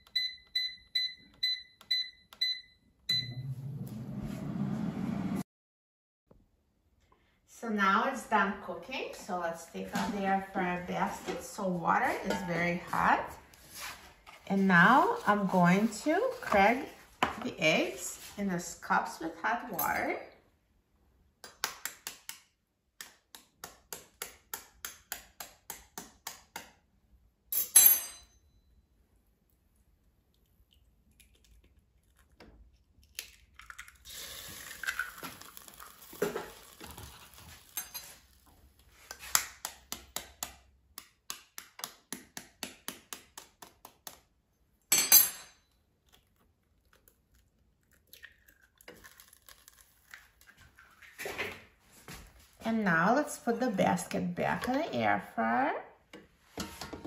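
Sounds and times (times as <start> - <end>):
eggshell cracking: 30.3 - 36.8, 46.0 - 50.6.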